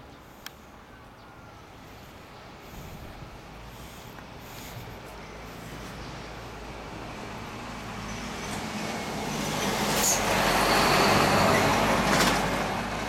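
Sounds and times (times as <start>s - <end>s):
road vehicle passing: 0.0s - 13.0s.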